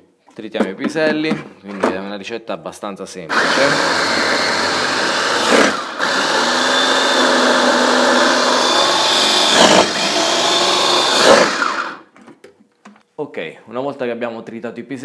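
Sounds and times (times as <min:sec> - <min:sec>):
electric food chopper running: 0:03.3 - 0:12.1.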